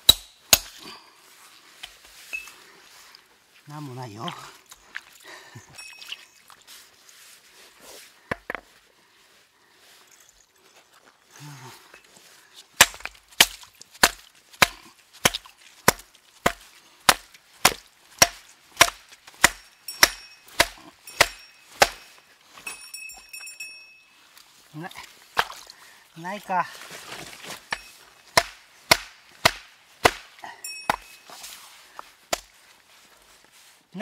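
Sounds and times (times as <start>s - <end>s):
hammer striking rock: 0.0s - 0.8s, 12.8s - 22.1s, 27.7s - 31.2s
faint metallic ring: 2.2s - 2.6s, 5.8s - 6.4s, 19.6s - 24.4s, 30.6s - 31.6s.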